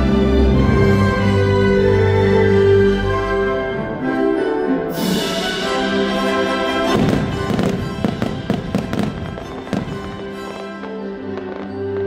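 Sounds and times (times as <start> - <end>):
music playing: 0.0 - 12.0
fireworks bangs and crackles: 6.9 - 12.0.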